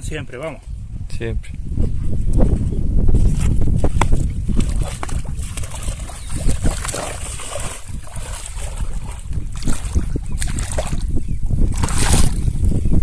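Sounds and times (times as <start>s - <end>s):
wind buffeting microphone: 0.0s - 13.0s
water splashing from wading: 4.2s - 11.1s, 11.7s - 12.5s.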